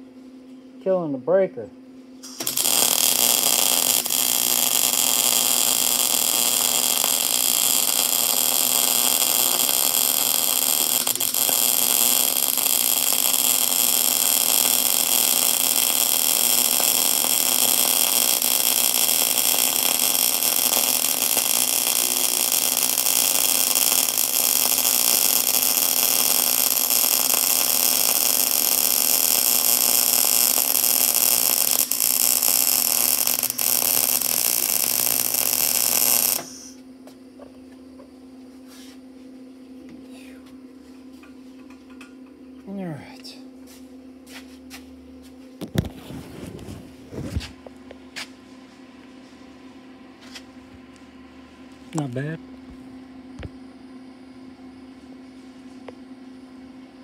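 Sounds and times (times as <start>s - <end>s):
welding arc hissing: 2.2s - 36.8s.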